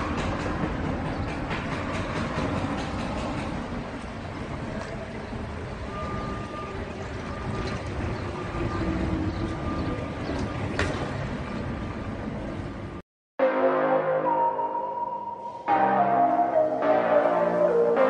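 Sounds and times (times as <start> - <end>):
diesel vehicles rumbling: 0.0 - 13.0.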